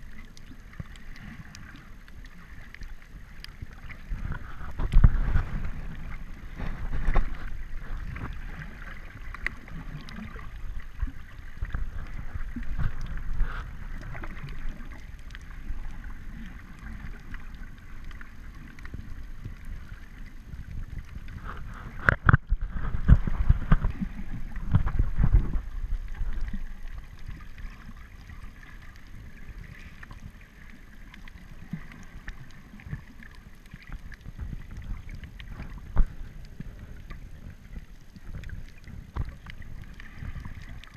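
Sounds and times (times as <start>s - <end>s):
muffled underwater sloshing: 0.0s - 40.9s
water splashing: 0.0s - 40.9s.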